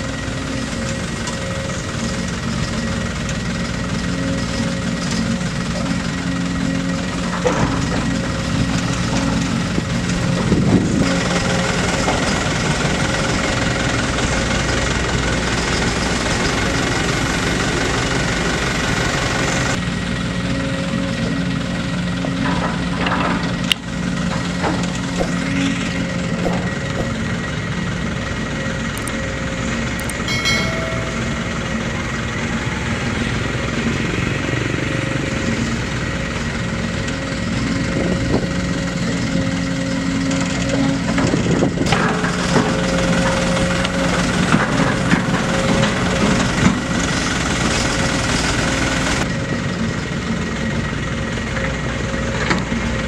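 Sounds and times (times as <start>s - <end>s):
excavator engine and hydraulics: 0.0s - 53.0s.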